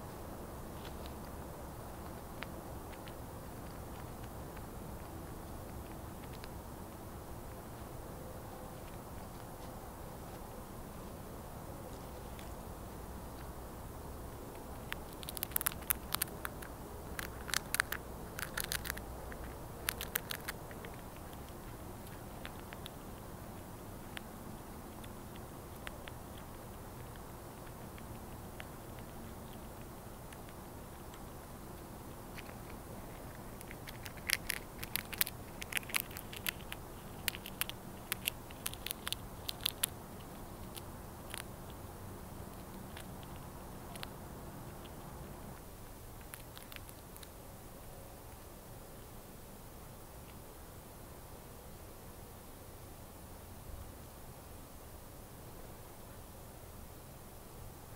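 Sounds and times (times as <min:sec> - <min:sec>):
squirrel cracking peanut shell: 0:00.8 - 0:11.0, 0:11.8 - 0:13.7, 0:14.3 - 0:49.1.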